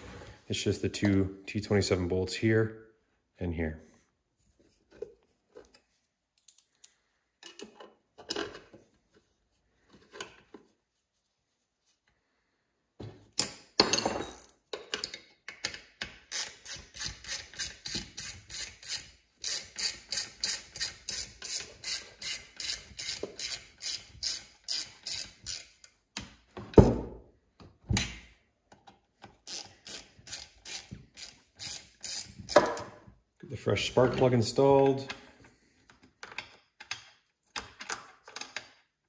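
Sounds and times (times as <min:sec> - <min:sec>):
hand ratchet clicking: 0:14.2 - 0:26.0, 0:29.4 - 0:32.6.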